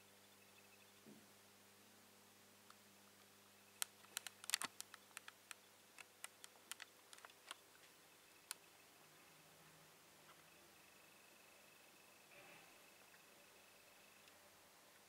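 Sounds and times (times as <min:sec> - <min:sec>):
sharp light clicks: 0:02.7 - 0:07.6.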